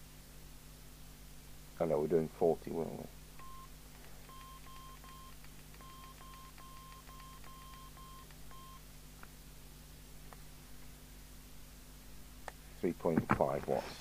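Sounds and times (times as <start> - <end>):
keypad beeps with clicks: 3.4 - 3.7, 4.3 - 8.8.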